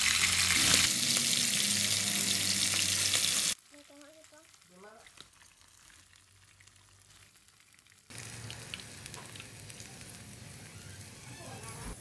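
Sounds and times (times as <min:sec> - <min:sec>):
hot oil sizzling and crackling: 0:00.0 - 0:12.0.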